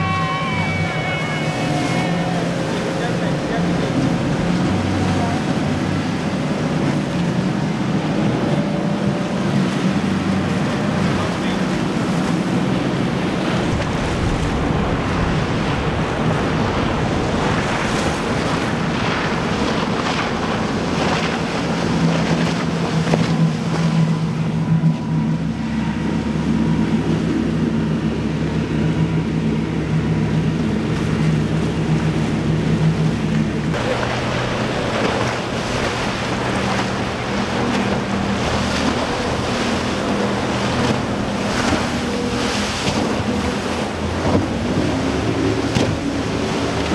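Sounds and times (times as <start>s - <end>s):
motorboat engines running: 0.0s - 46.9s
rushing water and waves: 0.0s - 46.9s
wind buffeting microphone: 0.0s - 46.9s.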